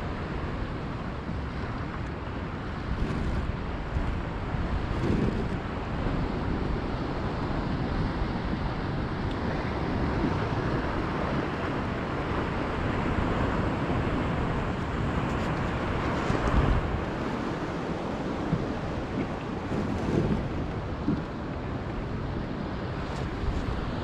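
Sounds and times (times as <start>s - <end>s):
wind on microphone: 0.0s - 24.0s
ocean water lapping: 0.1s - 24.0s.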